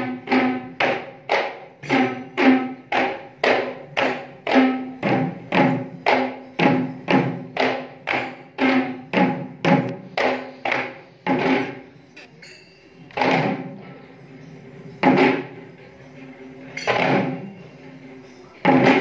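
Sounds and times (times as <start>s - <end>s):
hand drums beating: 0.0s - 11.8s, 13.2s - 13.9s, 15.0s - 15.6s, 18.6s - 19.0s.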